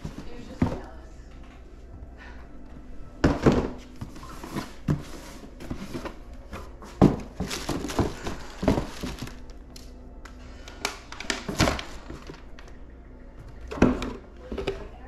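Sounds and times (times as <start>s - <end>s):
knocks of box and shoes: 3.2s - 9.3s.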